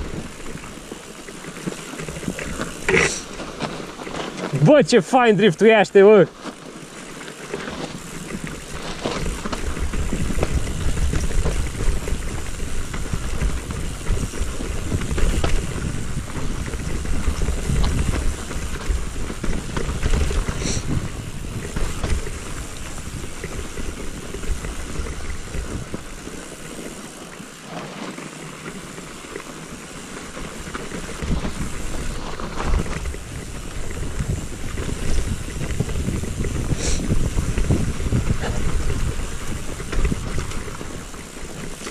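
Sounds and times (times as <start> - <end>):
mountain bike rumbling on snow: 0.0 - 41.9
wind on microphone: 7.9 - 26.2, 31.1 - 41.9.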